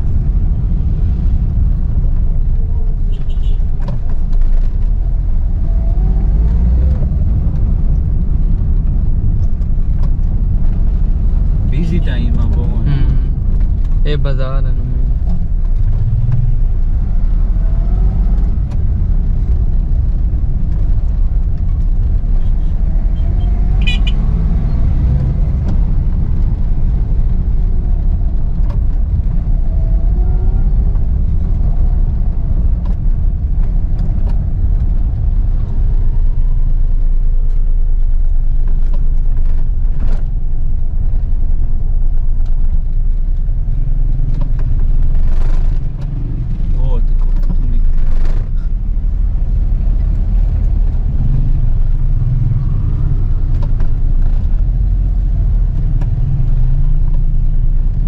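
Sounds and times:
car engine and road noise: 0.0 - 58.0
high-pitched car horn toot: 23.8 - 24.2.

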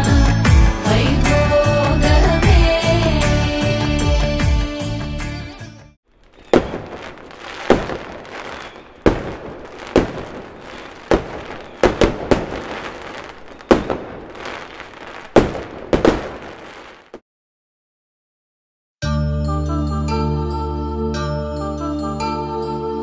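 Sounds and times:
fireworks crackling: 6.1 - 17.2
fireworks bangs: 6.2 - 17.2.

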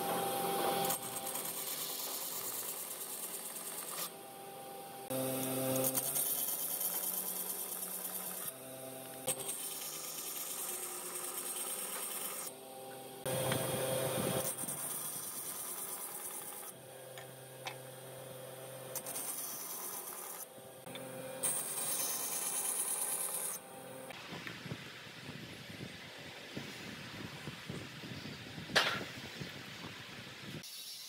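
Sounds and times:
saw blade cutting wood: 0.0 - 4.2, 5.1 - 17.8, 18.7 - 23.6
band saw motor hum: 0.0 - 24.2.

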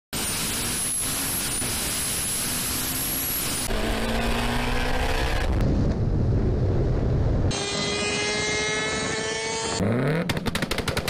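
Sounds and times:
car engine at full throttle: 0.2 - 5.7, 7.5 - 10.6
high turbo whine: 0.2 - 10.3.

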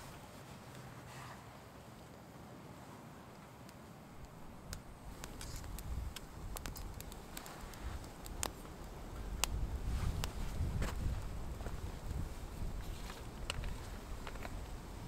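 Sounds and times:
campfire crackling and popping: 3.3 - 15.0.

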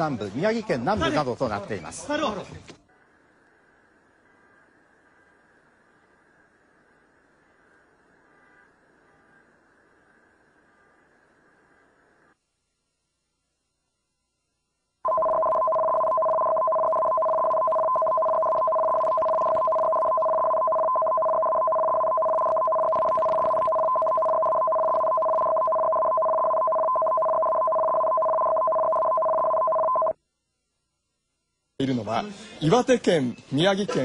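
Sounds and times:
electronic two-pitch warble: 15.1 - 30.2.

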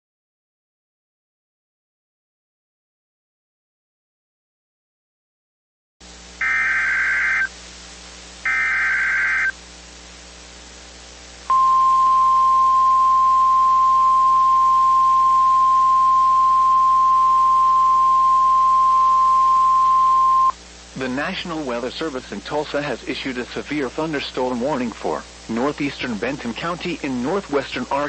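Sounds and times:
faint radio hiss: 6.0 - 28.0
digital header bursts: 6.4 - 7.5, 8.4 - 9.5
steady warning alarm tone: 6.4 - 7.5, 8.4 - 9.6, 11.5 - 20.6.

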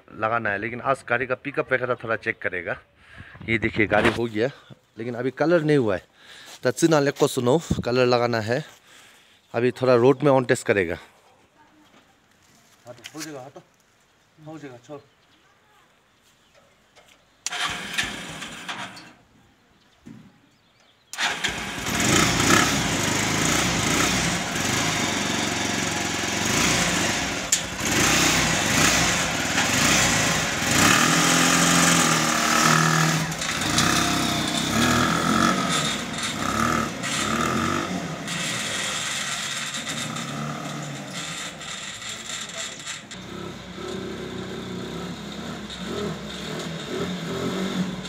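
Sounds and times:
small engine revving: 17.5 - 19.0, 21.2 - 48.0.

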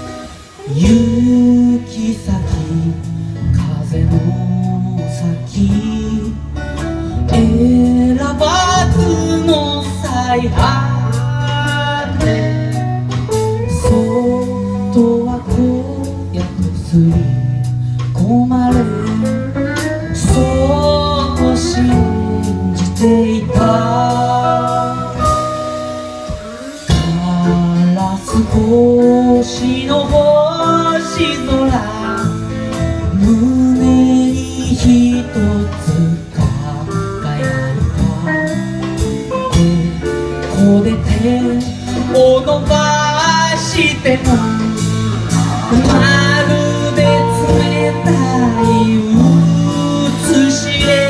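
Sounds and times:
acoustic guitar: 0.0 - 51.0
drums: 0.0 - 51.0
lead melody: 0.0 - 51.0.

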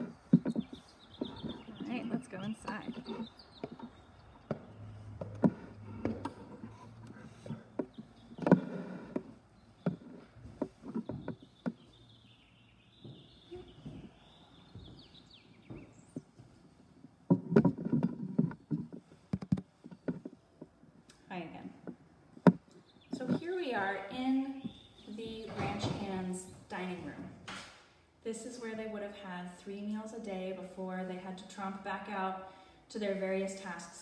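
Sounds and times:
irregular knocks and clicks: 0.0 - 12.0, 13.0 - 21.2, 21.8 - 23.4
footsteps indoors: 0.0 - 19.7.

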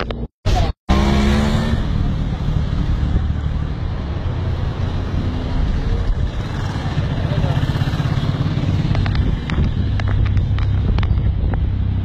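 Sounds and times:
wind buffeting microphone: 4.9 - 12.0.

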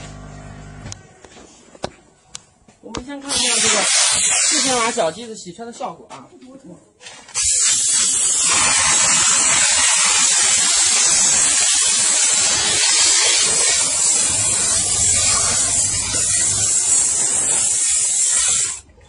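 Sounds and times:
steam nozzle hissing: 3.3 - 5.2, 7.3 - 18.8.

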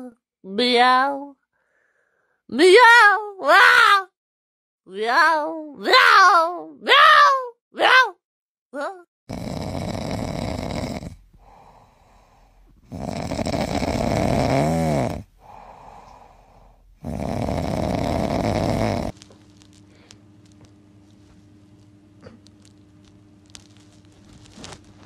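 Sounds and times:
dog snoring: 9.3 - 19.2.

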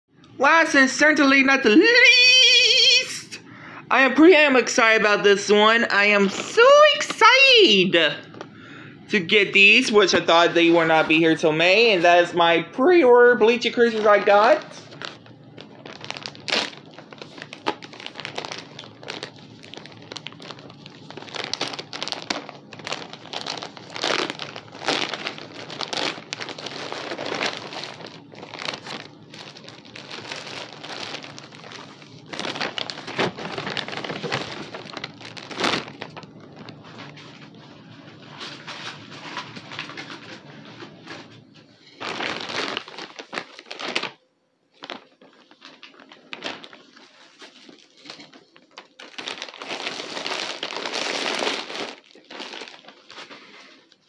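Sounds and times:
packaging crinkling and rustling: 13.3 - 54.0.

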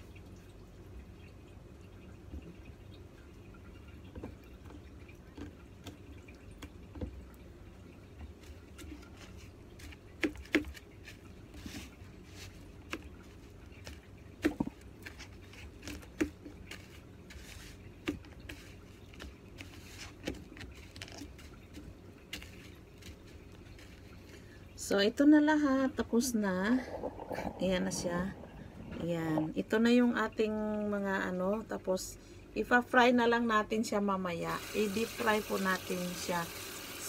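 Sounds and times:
breadcrumbs rustling: 8.3 - 24.7.

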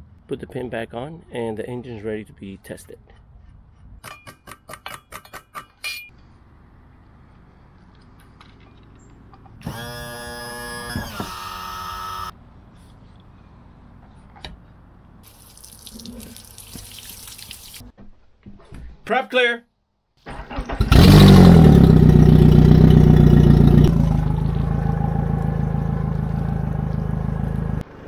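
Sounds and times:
water running through hose: 15.2 - 17.9.

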